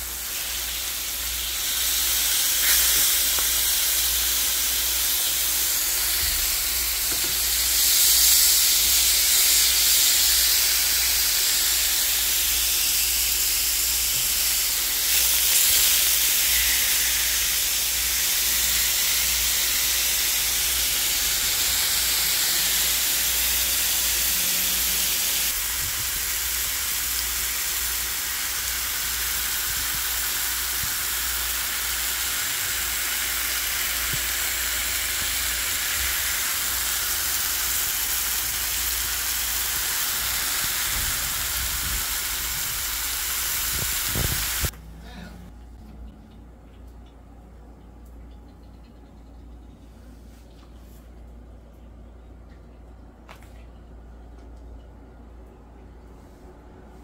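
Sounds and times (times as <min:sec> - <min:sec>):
steaks sizzling in oil: 0:00.0 - 0:44.7.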